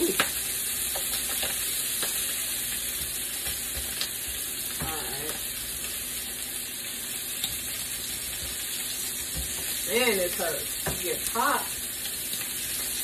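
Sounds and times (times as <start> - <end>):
sausage sizzling on griddle: 0.0 - 13.0.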